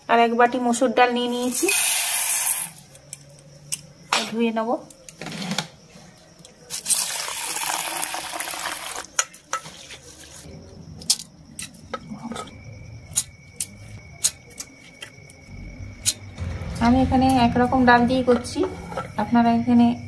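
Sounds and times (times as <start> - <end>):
water pouring into steel bowl: 6.8 - 9.1.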